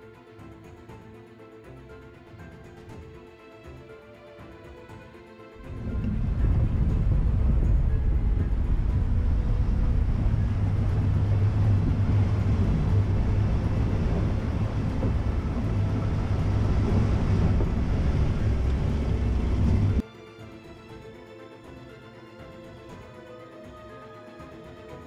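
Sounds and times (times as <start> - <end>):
engine and tyres rumbling: 5.6 - 20.0
water rushing and splashing: 5.6 - 20.0.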